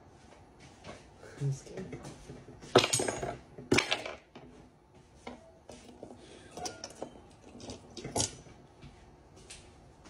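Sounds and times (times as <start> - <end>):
tableware clinking on a table: 2.8 - 4.2, 6.5 - 8.5.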